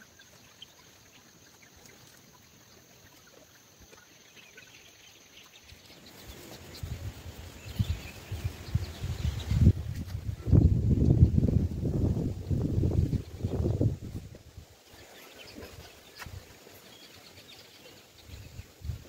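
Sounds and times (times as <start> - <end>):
faint bird chirps: 0.0 - 11.3
wind buffeting microphone: 6.7 - 14.7, 18.2 - 19.0.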